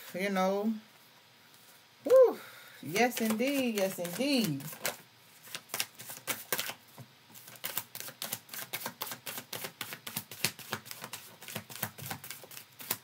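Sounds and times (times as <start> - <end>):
cards being shuffled: 2.9 - 13.0.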